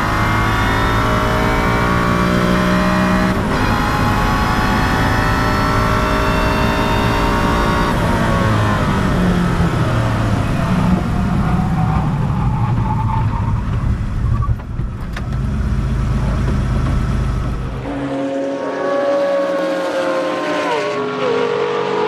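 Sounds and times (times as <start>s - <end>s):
high-pitched race car engine: 0.0s - 14.4s, 17.6s - 22.0s
deep car engine: 0.0s - 21.9s.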